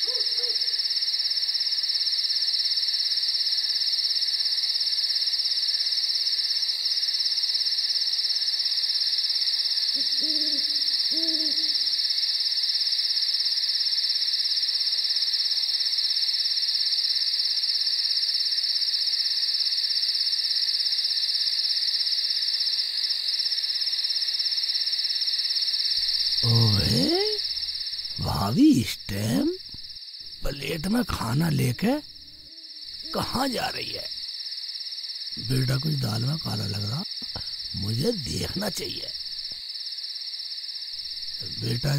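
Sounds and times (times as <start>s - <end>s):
owl hooting: 0.0s - 0.9s, 9.9s - 12.1s, 26.0s - 34.1s
crickets chirring: 0.0s - 41.9s.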